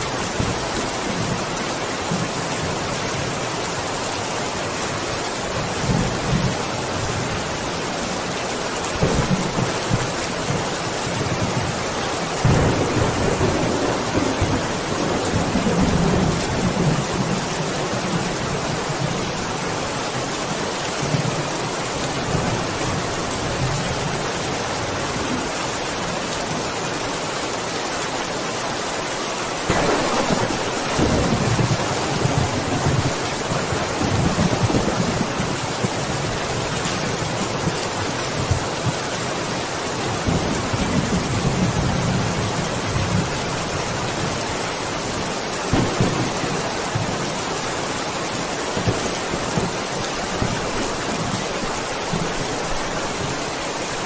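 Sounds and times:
heavy rain: 0.0s - 54.0s
thunder rumbling: 8.9s - 19.7s, 29.6s - 39.2s, 45.1s - 53.4s.

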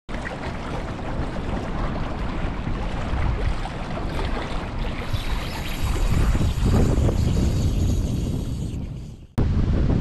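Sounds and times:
water rushing: 0.1s - 7.6s
wind buffeting microphone: 0.2s - 10.0s.

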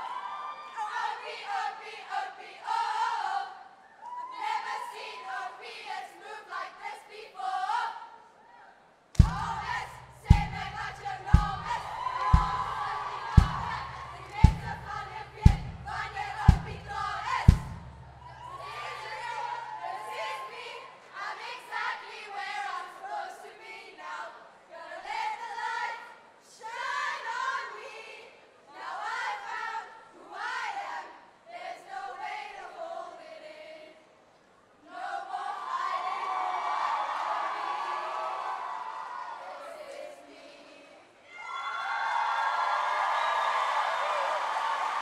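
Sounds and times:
choir of women singing: 0.0s - 41.2s
heavy beat thumps: 9.2s - 18.4s.

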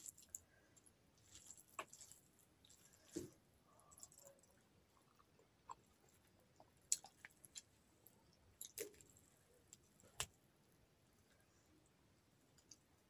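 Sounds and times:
chewing: 1.2s - 7.7s.

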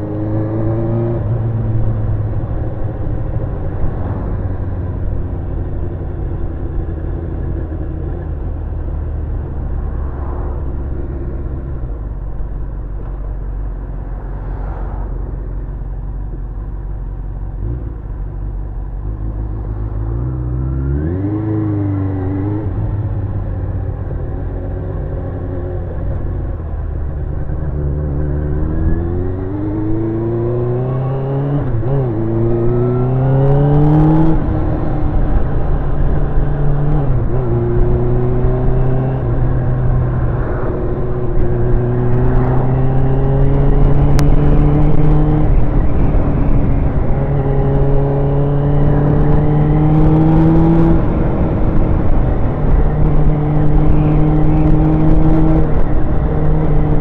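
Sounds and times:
motorcycle engine accelerating: 0.0s - 57.0s
wind noise: 21.0s - 57.0s.

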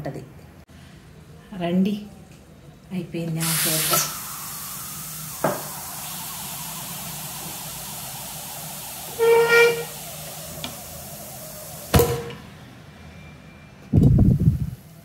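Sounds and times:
steady hiss: 3.4s - 12.7s
pressure cooker whistling: 3.4s - 15.0s.

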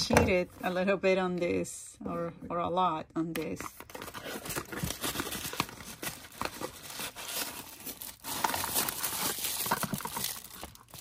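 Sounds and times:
packaging crinkling and tearing: 3.9s - 11.0s.

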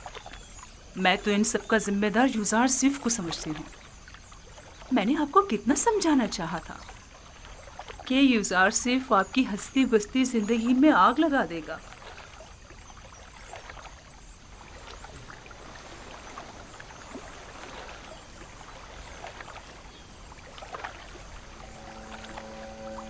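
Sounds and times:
trickling water: 0.0s - 23.0s
soft sustained music chords: 16.1s - 23.0s.

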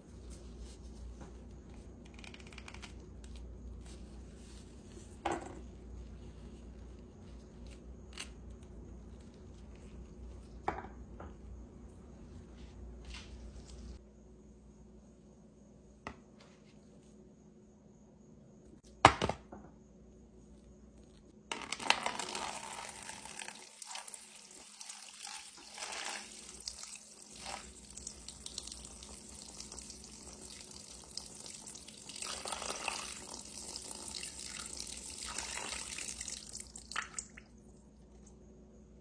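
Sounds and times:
water pouring into bowl: 22.8s - 37.4s.

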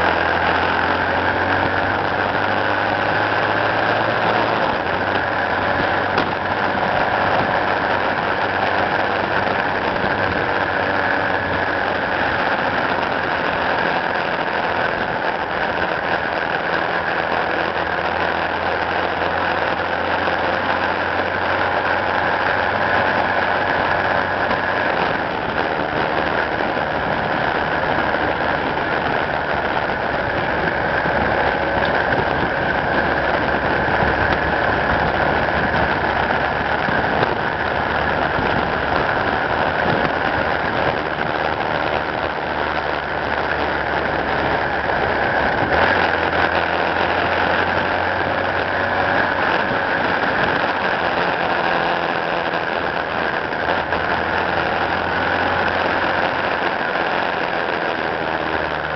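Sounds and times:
vehicle engine humming: 0.0s - 58.9s
wind and tyre noise: 0.0s - 58.9s.

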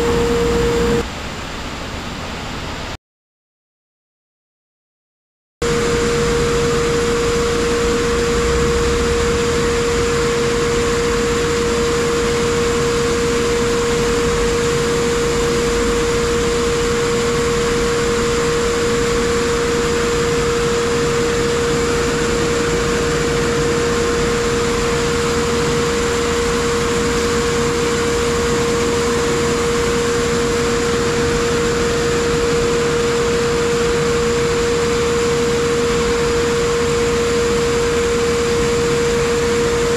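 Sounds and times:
steady mid-pitched tone: 0.0s - 1.0s, 5.9s - 13.8s.

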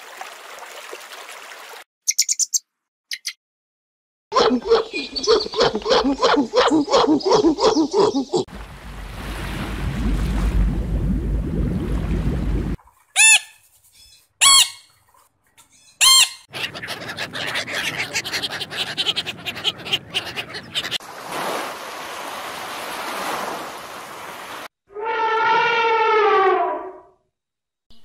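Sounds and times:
macaw squawking: 4.4s - 8.4s, 13.2s - 14.9s, 15.7s - 21.0s
ducks quacking: 16.0s - 21.0s.

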